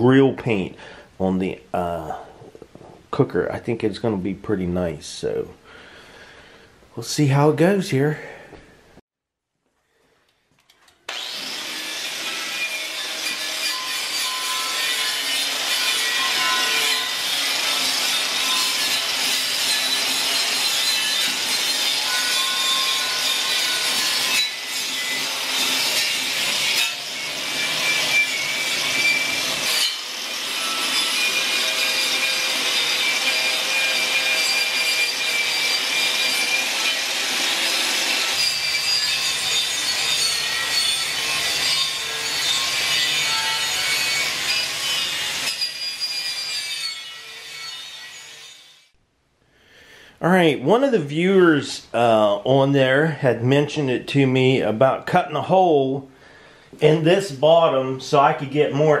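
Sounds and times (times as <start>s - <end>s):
angle grinder wire brush whine: 11.1s - 48.9s
wire brush scraping metal: 12.2s - 37.0s.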